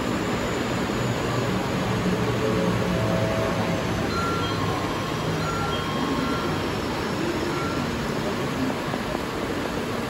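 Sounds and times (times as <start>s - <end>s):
station platform ambience: 0.0s - 10.0s
faint high tones: 2.1s - 8.6s.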